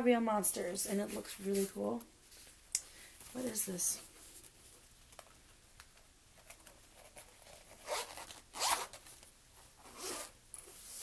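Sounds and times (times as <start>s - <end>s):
zipper rasping: 7.0s - 9.0s, 9.8s - 10.4s.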